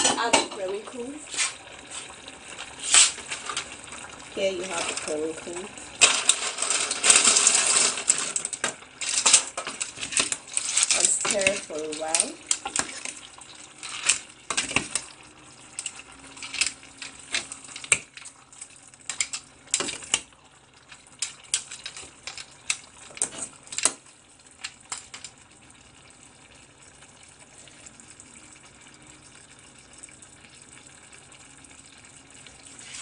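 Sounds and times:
ladle scraping metal pot: 0:06.0 - 0:15.1.

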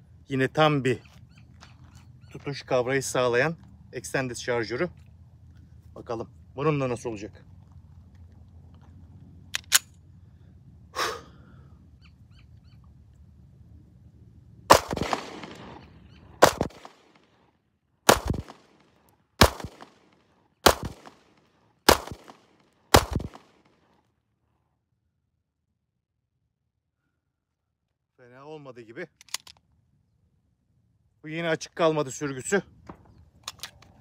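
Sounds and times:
pistol shots with echo: 0:14.7 - 0:17.2, 0:18.1 - 0:18.8, 0:19.4 - 0:23.6
pistol being readied clicks: 0:29.1 - 0:29.6.

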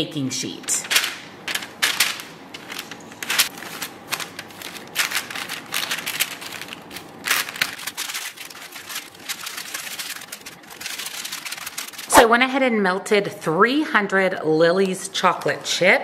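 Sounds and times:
parchment paper crinkling: 0:00.8 - 0:12.2.

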